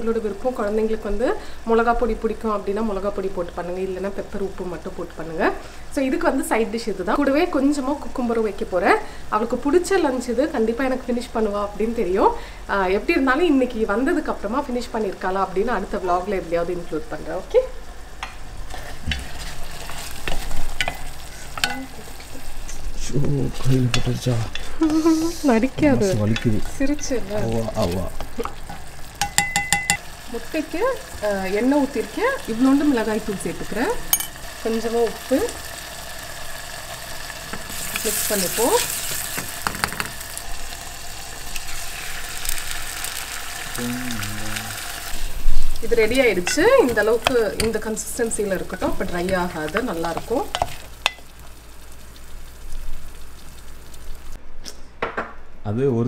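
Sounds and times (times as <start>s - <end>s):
light sizzle: 0.0s - 54.4s
wooden spoon stirring: 18.2s - 24.8s, 48.6s - 51.6s
person speaking: 22.8s - 28.2s, 43.8s - 44.9s.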